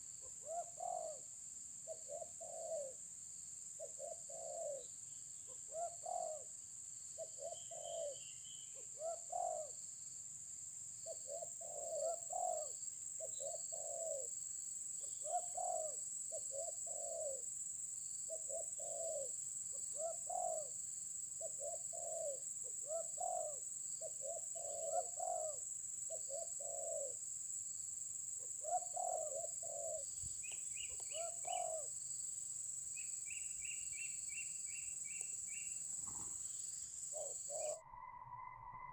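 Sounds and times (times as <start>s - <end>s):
high insect hiss: 0.0s - 38.3s
doves cooing: 0.4s - 1.2s, 2.0s - 3.0s, 3.9s - 4.8s, 5.7s - 6.4s, 7.3s - 8.2s, 9.0s - 9.7s, 11.3s - 12.7s, 13.3s - 14.3s, 15.2s - 17.4s, 18.4s - 19.3s, 19.9s - 20.7s, 21.4s - 27.2s, 28.6s - 30.1s, 30.8s - 31.9s
small bird chirping: 3.8s - 6.5s, 7.2s - 9.7s, 11.0s - 14.3s, 18.3s - 20.7s, 21.4s - 27.2s, 28.4s - 31.9s, 33.0s - 38.9s.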